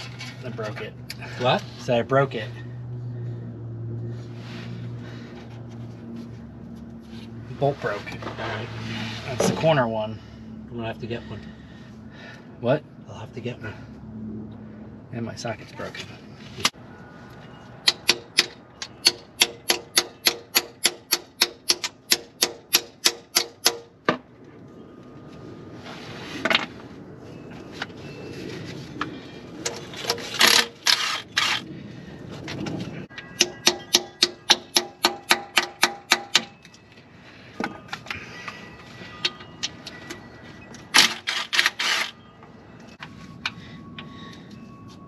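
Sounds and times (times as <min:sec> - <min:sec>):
tool clinks: 0:33.1 - 0:45.0.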